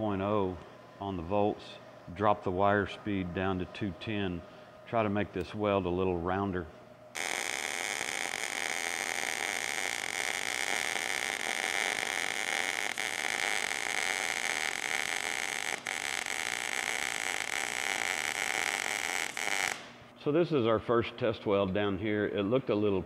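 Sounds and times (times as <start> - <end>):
welding arc sizzling: 7.1 - 20.1.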